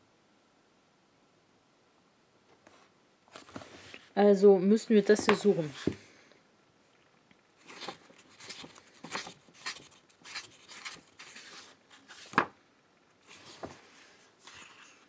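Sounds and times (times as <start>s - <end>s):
book pages flipping: 2.5s - 4.2s, 7.6s - 15.0s.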